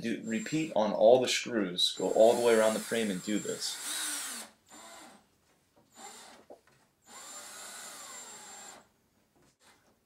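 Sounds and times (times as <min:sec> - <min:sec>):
cordless drill driving screw: 0:02.0 - 0:05.2, 0:05.9 - 0:06.4, 0:07.1 - 0:08.9.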